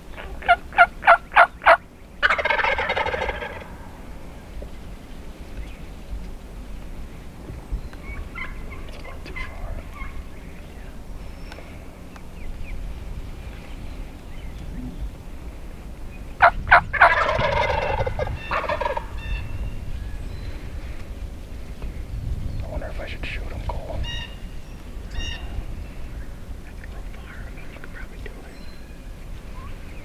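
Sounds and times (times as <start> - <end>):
turkeys gobbling: 0.1 - 4.0, 8.0 - 10.7, 16.4 - 19.5, 23.9 - 25.6.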